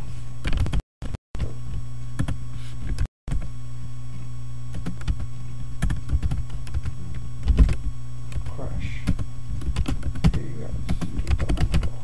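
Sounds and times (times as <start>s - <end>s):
electrical hum: 0.0s - 12.0s
computer keyboard keystrokes: 5.8s - 12.0s.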